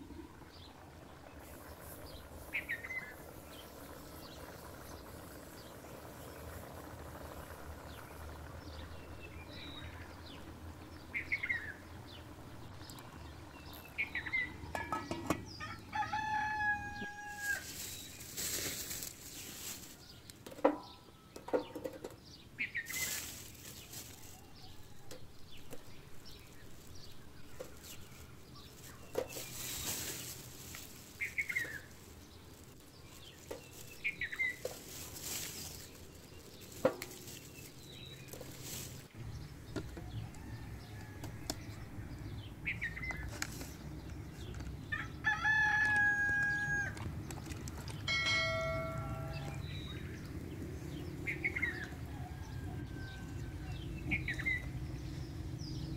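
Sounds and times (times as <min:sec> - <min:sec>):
small birds chirping: 0:00.3 - 0:55.9
rooster crowing: 0:15.6 - 0:17.7, 0:40.0 - 0:42.0, 0:44.9 - 0:47.0, 0:51.8 - 0:54.0.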